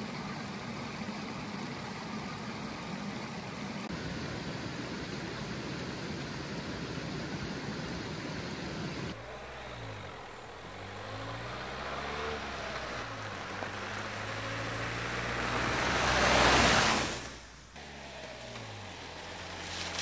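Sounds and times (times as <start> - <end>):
stream water rushing: 0.0 - 20.0
car driving on gravel: 9.1 - 20.0.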